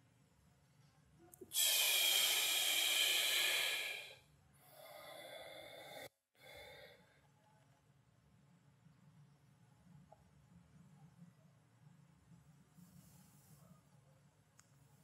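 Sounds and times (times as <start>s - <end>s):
man breathing deeply: 1.5s - 7.0s.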